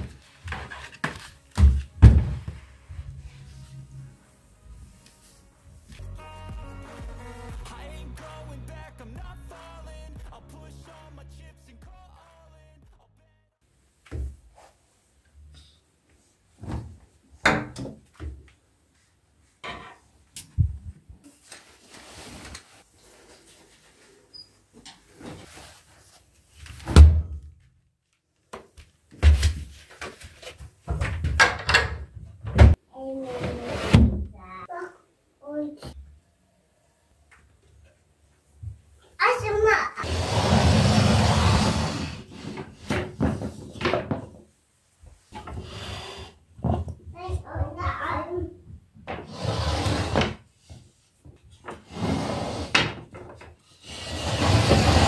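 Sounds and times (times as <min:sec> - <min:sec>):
plastic basket and cabinet thumps: 0:01.6 - 0:02.6.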